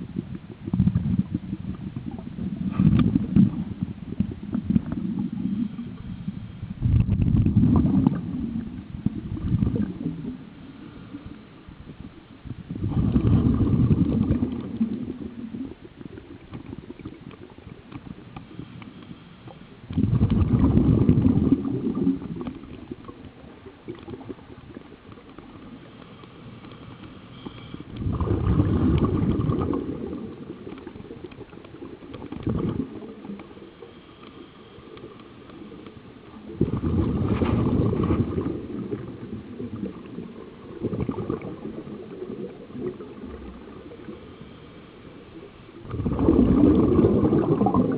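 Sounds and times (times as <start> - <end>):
underwater regulator bubbling: 0.0 - 47.9.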